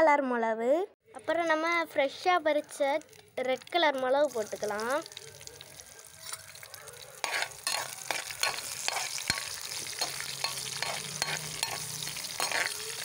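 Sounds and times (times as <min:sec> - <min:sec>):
spices sizzling in hot oil: 0:01.6 - 0:13.0
spatula scraping pan: 0:07.2 - 0:13.0.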